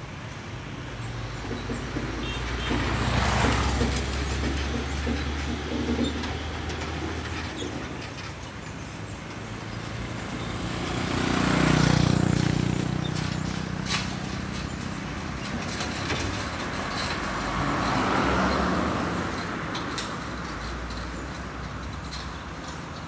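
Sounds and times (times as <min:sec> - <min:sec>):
steady traffic noise: 0:00.0 - 0:23.0
lorry engine passing: 0:09.4 - 0:20.3
vehicle passing: 0:09.6 - 0:21.4.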